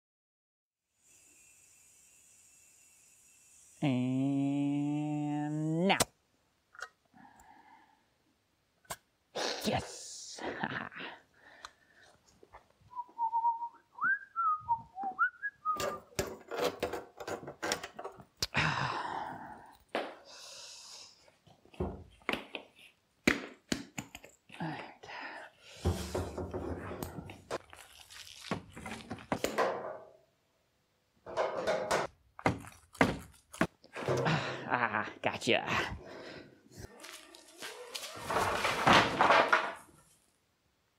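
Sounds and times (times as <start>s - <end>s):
person whistling a tune: 12.9s - 16.1s.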